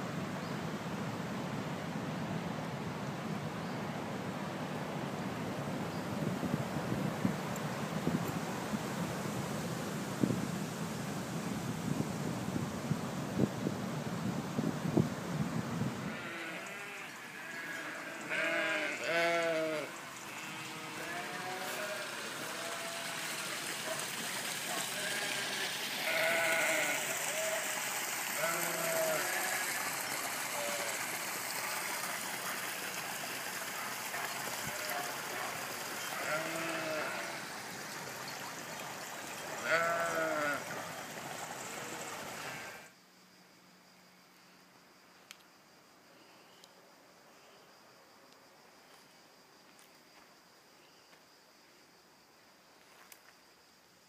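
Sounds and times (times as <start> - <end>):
steady hiss: 0.0 - 54.0
sheep bleating: 16.1 - 23.2, 24.9 - 27.6, 28.4 - 29.7, 36.2 - 37.4, 39.6 - 40.6.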